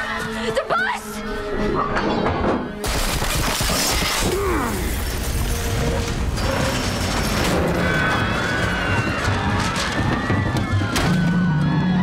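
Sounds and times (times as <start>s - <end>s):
crashing and rattling effects: 2.8s - 11.6s.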